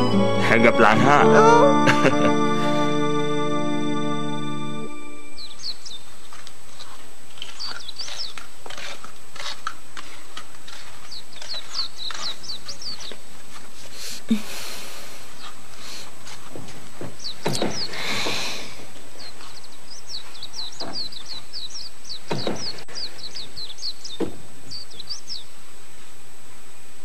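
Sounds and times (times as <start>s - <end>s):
small birds chirping: 5.0s - 26.1s.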